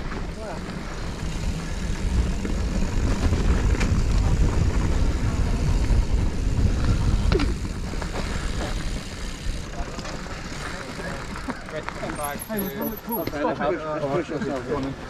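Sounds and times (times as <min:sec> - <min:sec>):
bike tyres rumbling on dirt: 0:00.0 - 0:13.5
bike rattling: 0:00.0 - 0:15.0
wind on microphone: 0:01.7 - 0:09.1.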